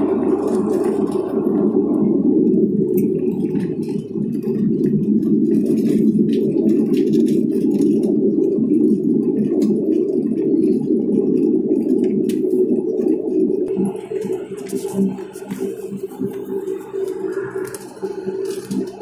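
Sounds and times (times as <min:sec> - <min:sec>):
propeller engines droning: 0:13.8 - 0:19.0.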